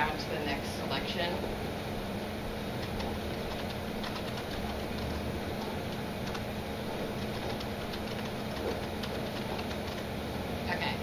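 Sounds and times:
mechanical room hum: 0.0s - 11.0s
keyboard typing: 2.8s - 10.1s.

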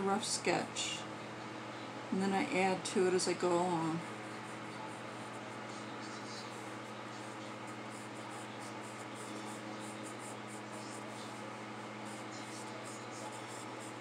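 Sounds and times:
steady low hum: 0.0s - 14.0s
pencil scratching on paper: 3.8s - 14.0s.

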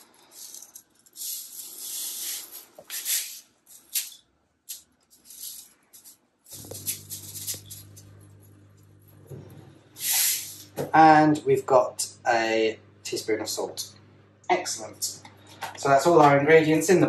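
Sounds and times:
seasoning shaker shaking: 0.0s - 8.0s
low steady hum: 5.3s - 17.0s.

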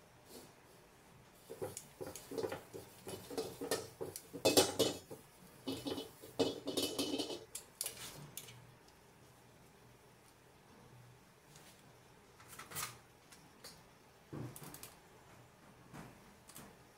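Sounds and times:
metal tongs scraping a wok: 1.5s - 8.5s.

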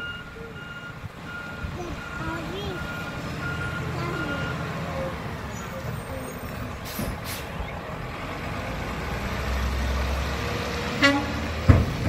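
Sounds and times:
garbage truck diesel engine: 0.0s - 12.0s
short hiss: 6.8s - 7.6s.

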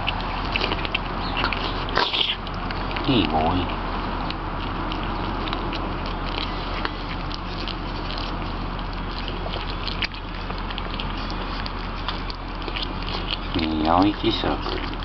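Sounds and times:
cats chewing and smacking: 0.0s - 15.0s
steady low hum: 0.0s - 15.0s.

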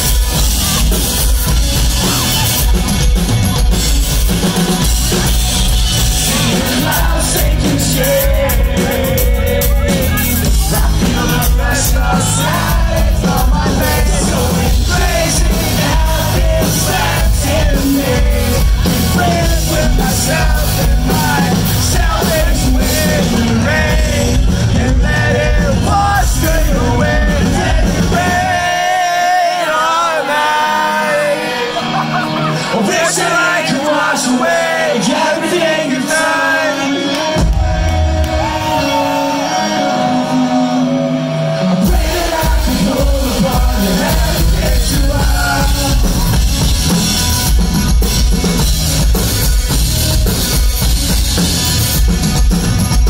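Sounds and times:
bass guitar: 0.0s - 29.2s, 36.9s - 53.0s
drums: 0.0s - 53.0s
person singing: 6.0s - 47.0s.

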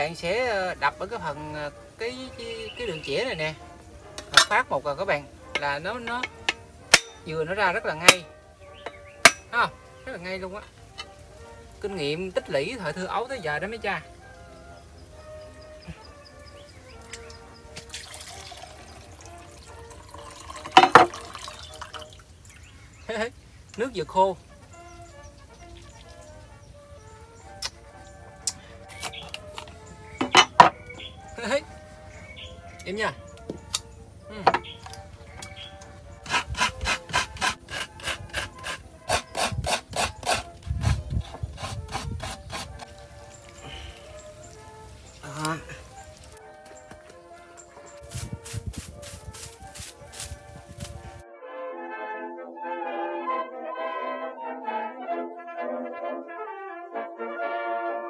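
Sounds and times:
machete knocking coconut shell: 5.6s - 7.3s
water trickling into a glass: 17.0s - 22.7s
coconut rasping on metal scraper: 36.2s - 43.0s.

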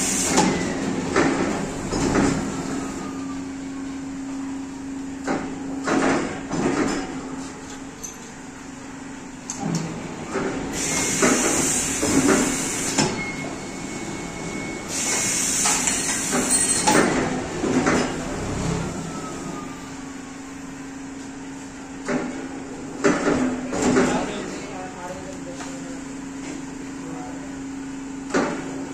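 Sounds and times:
steady machine hum: 0.0s - 28.9s
machine clunks and rattles: 0.3s - 2.5s, 5.2s - 7.2s, 9.5s - 13.6s, 15.6s - 18.4s, 23.0s - 24.3s.

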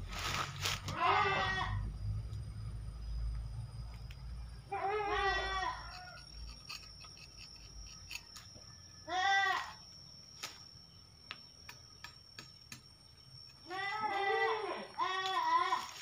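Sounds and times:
farm animal cry: 0.7s - 2.0s, 4.6s - 6.5s, 9.0s - 9.8s, 13.6s - 16.0s.

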